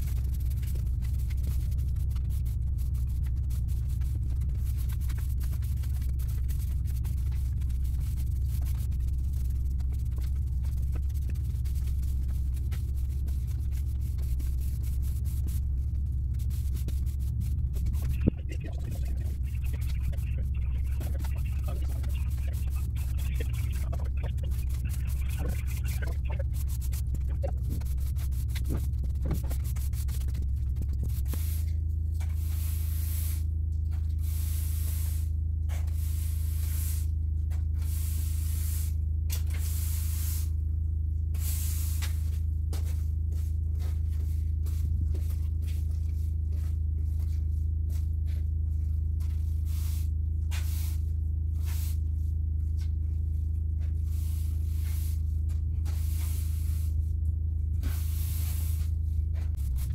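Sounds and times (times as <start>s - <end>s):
broom sweeping sand on paving: 31.3s - 31.7s, 32.4s - 33.5s, 34.2s - 37.2s, 37.8s - 39.0s, 39.6s - 40.6s, 41.4s - 44.8s, 49.3s - 52.2s, 53.9s - 57.0s, 57.8s - 59.0s.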